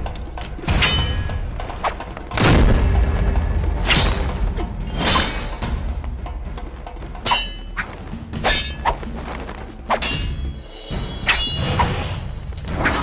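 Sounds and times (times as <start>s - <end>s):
background music: 0.0s - 13.0s
swords clashing: 0.4s - 2.0s, 7.2s - 9.0s, 9.9s - 12.0s.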